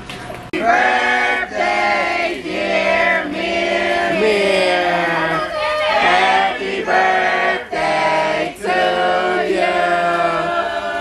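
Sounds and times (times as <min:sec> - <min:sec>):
choir singing long notes: 0:00.6 - 0:11.0.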